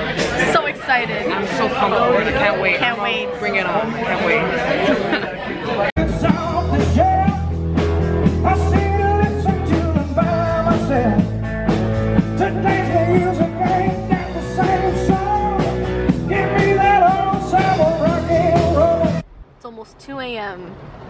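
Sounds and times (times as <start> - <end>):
man singing: 6.0 - 11.5, 12.1 - 19.2
live rock band playing: 6.0 - 19.2.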